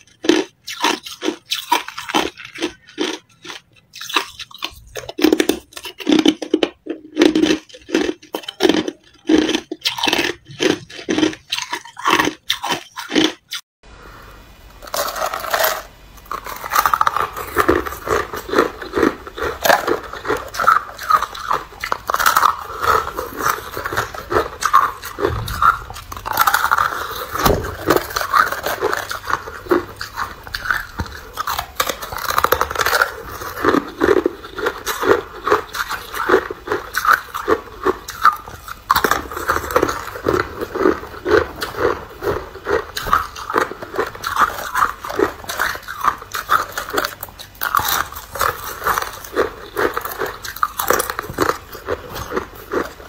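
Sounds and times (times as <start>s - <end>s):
low steady hum: 13.8s - 53.0s
ice crunched between teeth: 14.8s - 53.0s.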